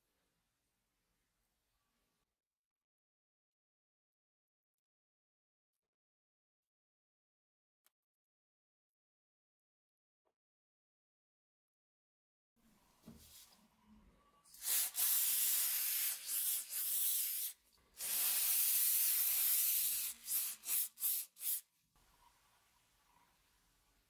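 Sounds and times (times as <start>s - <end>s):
aerosol spray hissing: 14.6s - 21.6s.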